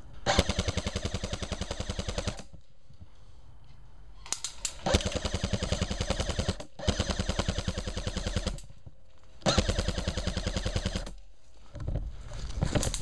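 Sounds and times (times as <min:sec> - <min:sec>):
airsoft rifle rapid bursts: 0:00.2 - 0:02.5, 0:04.8 - 0:08.7, 0:09.4 - 0:11.2
rustling: 0:11.2 - 0:13.0.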